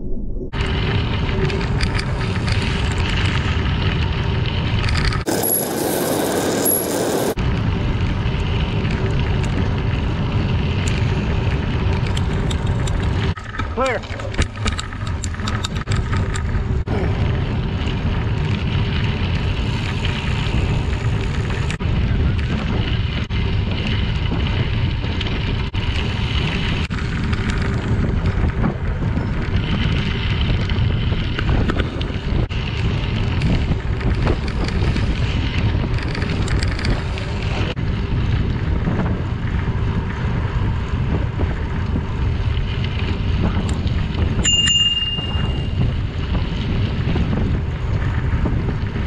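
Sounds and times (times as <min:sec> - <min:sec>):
wind buffeting microphone: 0:00.0 - 0:49.0
tyres rolling on gravel trail: 0:00.6 - 0:49.0
brief high ring: 0:44.4 - 0:45.8.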